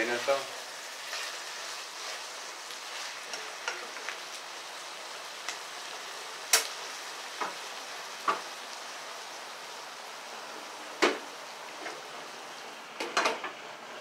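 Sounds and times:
food sizzling in frying pan: 0.0s - 14.0s
spatula stirring: 0.2s - 4.2s.

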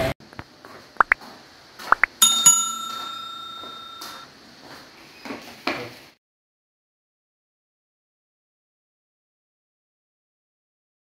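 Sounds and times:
bell ringing: 2.2s - 4.3s.

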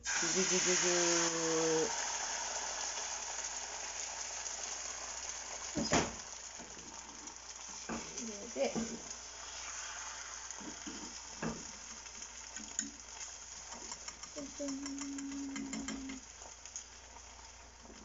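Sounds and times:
egg sizzling in oil: 0.0s - 18.0s
chopsticks tapping and scraping pan: 7.8s - 9.1s, 10.6s - 11.8s, 12.5s - 16.3s.

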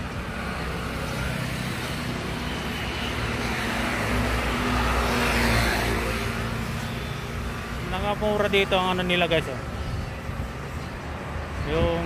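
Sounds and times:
vehicle engines running: 0.0s - 12.0s.

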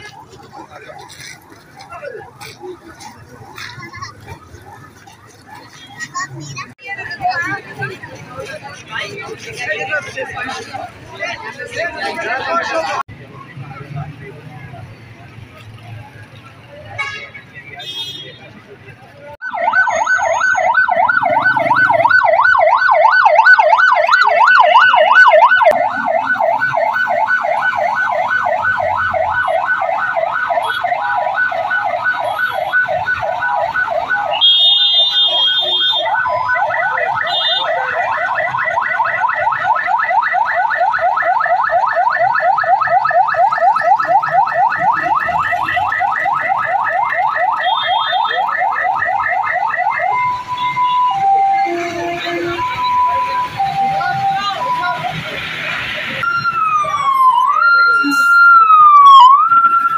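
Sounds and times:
fire engine siren yelping: 0.0s - 5.9s, 19.4s - 59.9s.

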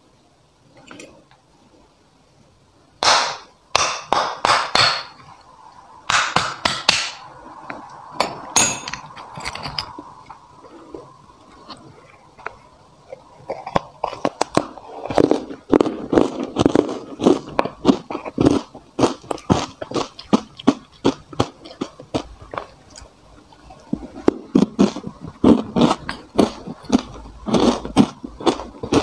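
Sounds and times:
ice crunching being chewed: 9.2s - 29.0s.

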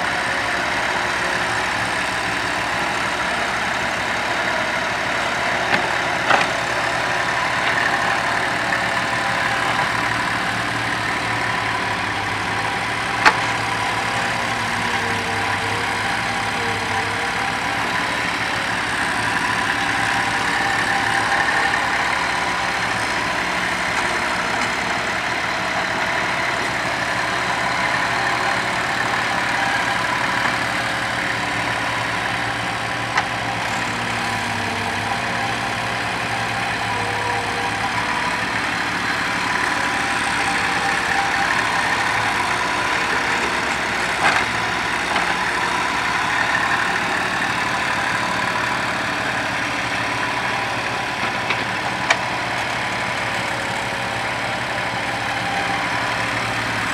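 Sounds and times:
diesel engine running: 0.0s - 56.9s.

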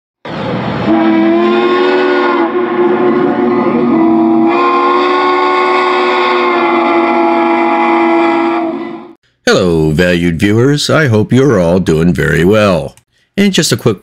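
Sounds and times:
steam locomotive chime whistle: 0.8s - 9.2s.

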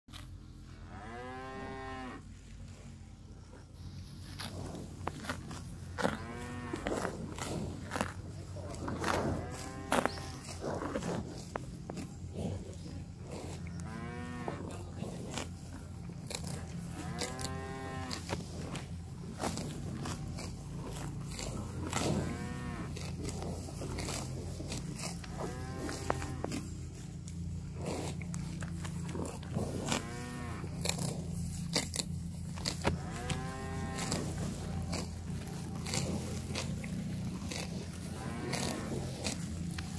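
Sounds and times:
cattle tearing and chewing grass: 0.1s - 39.9s
cow mooing: 0.8s - 2.3s, 6.0s - 7.6s, 8.6s - 11.4s, 13.2s - 15.4s, 16.3s - 18.8s, 20.8s - 23.1s, 25.0s - 26.7s, 27.8s - 31.2s, 32.6s - 39.9s.

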